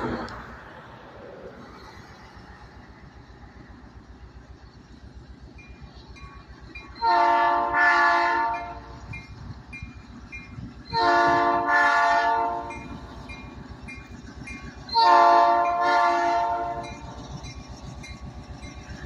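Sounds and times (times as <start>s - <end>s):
diesel engine rumble: 0.0s - 19.0s
locomotive horn blasts: 7.0s - 8.9s, 10.9s - 12.9s, 14.9s - 17.0s.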